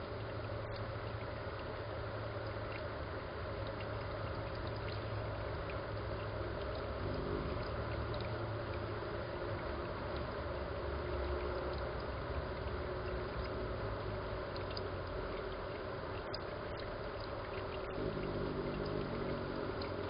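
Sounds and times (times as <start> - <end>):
steady low hum: 0.0 - 20.0
water trickling and gurgling: 0.0 - 20.0.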